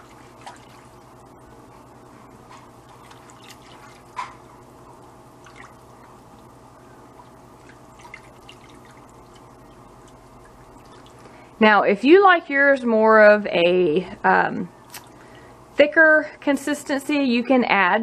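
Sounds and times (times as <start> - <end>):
whisk sloshing liquid: 0.0 - 4.6, 7.1 - 11.5
faint steady hum: 0.0 - 18.0
liquid splash: 2.9 - 4.4, 5.4 - 6.1, 7.6 - 11.4.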